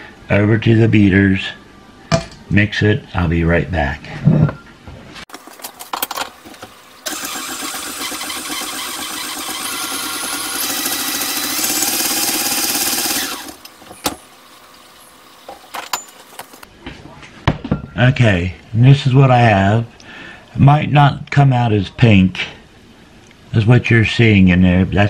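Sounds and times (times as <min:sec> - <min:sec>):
electric mixer running: 0:07.0 - 0:13.7.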